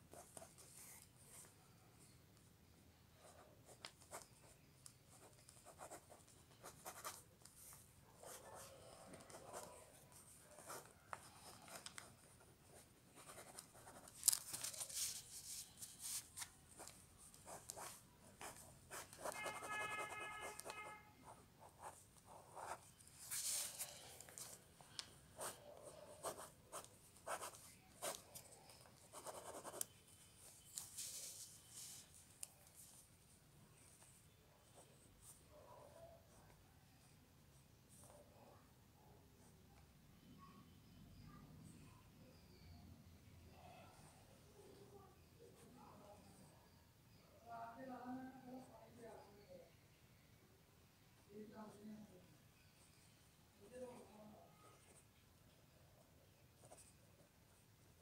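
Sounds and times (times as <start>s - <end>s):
pencil scratching on paper: 5.1s - 24.6s, 25.4s - 29.9s.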